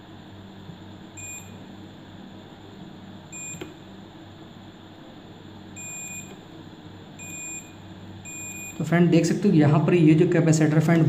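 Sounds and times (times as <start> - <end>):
steady low hum: 0.0 - 11.0
multimeter continuity beeps: 1.2 - 1.6, 3.3 - 3.8, 5.7 - 6.4, 7.2 - 8.9.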